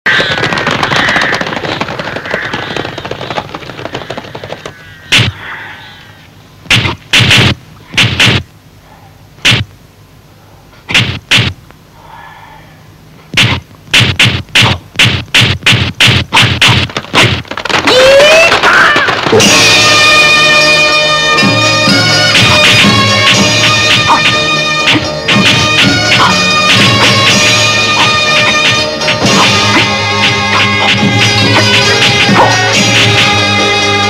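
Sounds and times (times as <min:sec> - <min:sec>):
punch and kick cracks: 0:05.1 - 0:05.4, 0:06.6 - 0:08.5, 0:09.4 - 0:09.7, 0:10.9 - 0:11.6, 0:13.3 - 0:19.4, 0:22.4 - 0:33.3.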